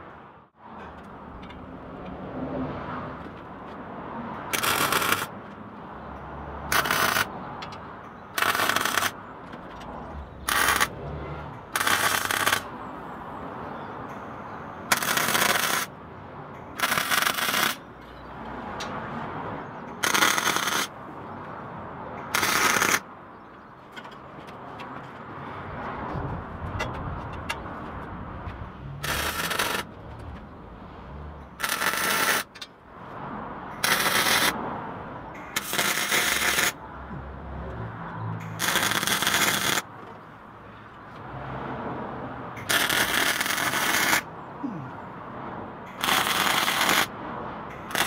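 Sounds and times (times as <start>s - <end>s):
welder arc crackling: 4.6s - 5.3s, 6.7s - 7.3s, 8.4s - 9.2s, 10.5s - 10.9s, 11.8s - 12.7s, 14.9s - 15.9s, 16.8s - 17.8s, 20.0s - 20.9s, 22.4s - 23.0s, 29.0s - 29.9s, 31.6s - 32.5s, 33.8s - 34.6s, 35.6s - 36.8s, 38.5s - 39.8s, 42.7s - 44.2s, 46.0s - 47.1s.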